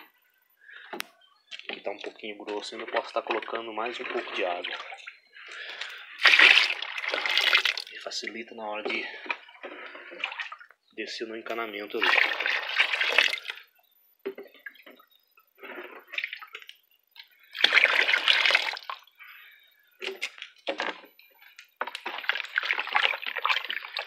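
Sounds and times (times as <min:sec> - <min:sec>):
wet sloshing and splashing: 0:01.6 - 0:08.2, 0:08.9 - 0:10.8, 0:11.8 - 0:13.7, 0:15.6 - 0:19.2, 0:21.8 - 0:24.0
water pouring into slurry: 0:01.6 - 0:10.8, 0:11.4 - 0:15.0, 0:15.6 - 0:19.6, 0:21.8 - 0:24.0.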